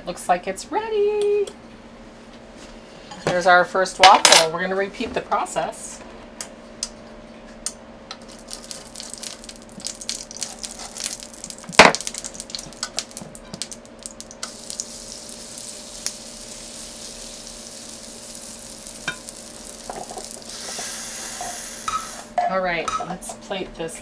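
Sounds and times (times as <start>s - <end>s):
batter sizzling: 8.2s - 22.4s.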